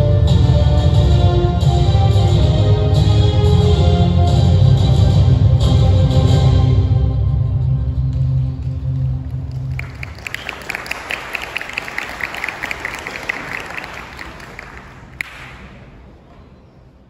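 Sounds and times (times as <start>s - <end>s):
audience applause: 9.1s - 15.7s.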